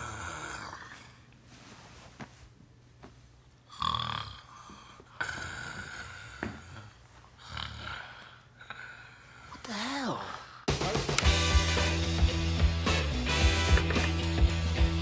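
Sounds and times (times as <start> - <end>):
man snoring: 0.0 - 1.1, 3.7 - 4.5, 5.2 - 8.2.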